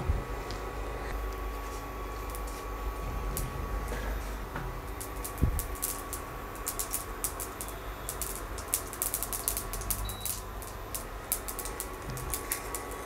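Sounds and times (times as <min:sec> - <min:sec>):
spices sizzling in hot oil: 0:04.2 - 0:13.0
sharp pops and crackles: 0:04.8 - 0:13.0.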